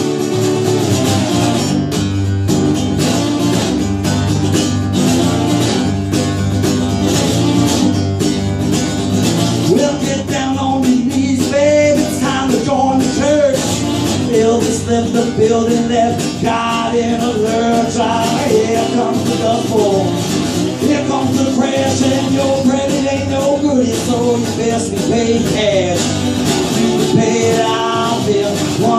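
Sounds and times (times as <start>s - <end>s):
acoustic guitar strumming: 0.0s - 28.9s
man singing: 9.6s - 28.9s.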